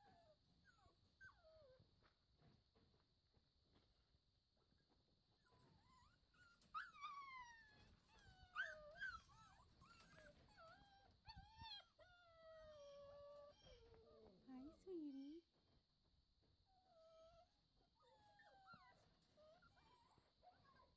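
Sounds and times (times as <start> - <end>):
puppies whining: 0.0 - 2.0, 4.6 - 15.4, 16.7 - 20.9.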